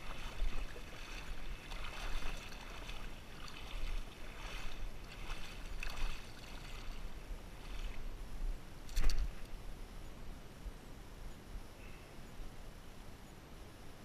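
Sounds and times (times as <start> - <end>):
fish splashing in water: 0.0 - 8.1.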